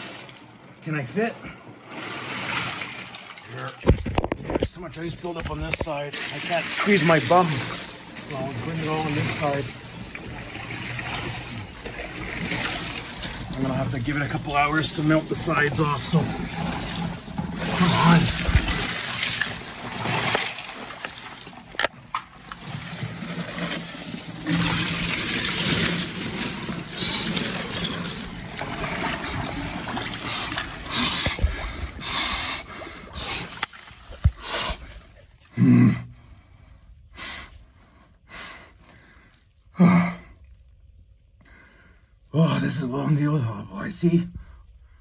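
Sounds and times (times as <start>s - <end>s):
ice water sloshing: 0.0s - 35.5s.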